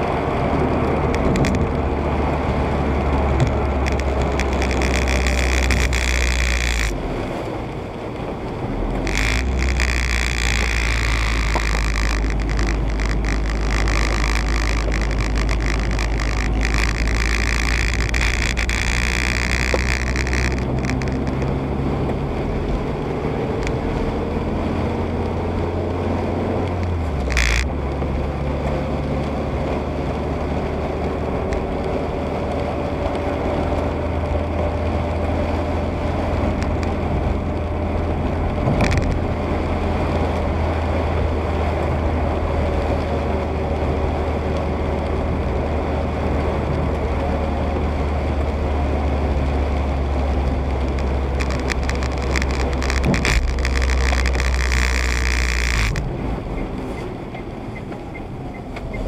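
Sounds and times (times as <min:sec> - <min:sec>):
car engine hum: 0:00.0 - 0:59.0
tyres on wet road: 0:00.0 - 0:59.0
short clicks: 0:09.0 - 0:21.5, 0:50.9 - 0:56.1.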